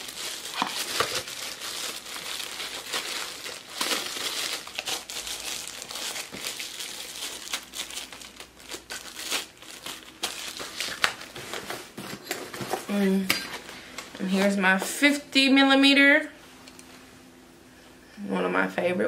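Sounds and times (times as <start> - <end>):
plastic wrapping crinkling: 0.0 - 14.5.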